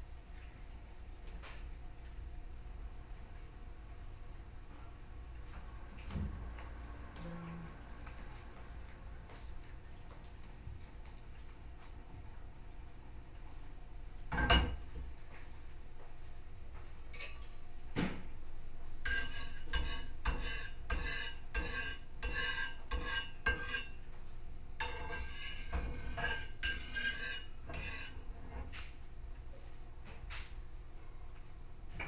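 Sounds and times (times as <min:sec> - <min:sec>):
metal turner scraping frying pan: 0:19.0 - 0:24.0, 0:24.8 - 0:28.8.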